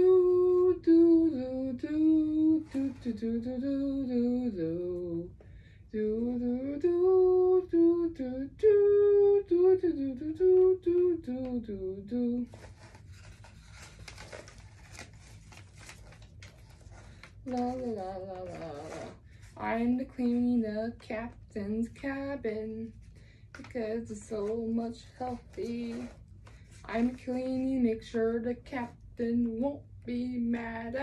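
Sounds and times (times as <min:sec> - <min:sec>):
woman humming a tune: 0:00.0 - 0:05.3
paper rustling and clicks: 0:12.5 - 0:19.1.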